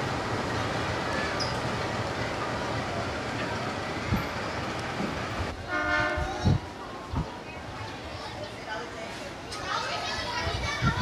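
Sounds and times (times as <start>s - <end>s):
trains rumbling on tracks: 0.0s - 11.0s
electric train horn: 5.7s - 6.4s.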